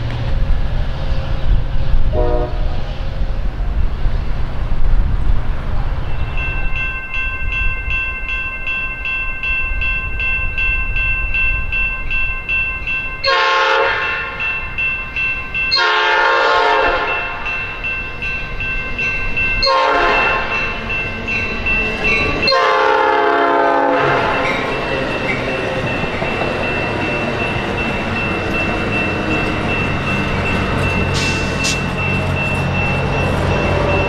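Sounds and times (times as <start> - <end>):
train horn blasts: 2.1 - 2.7, 13.3 - 14.4, 15.7 - 17.5, 19.6 - 20.6, 22.5 - 24.4
level-crossing warning bell: 6.0 - 34.0.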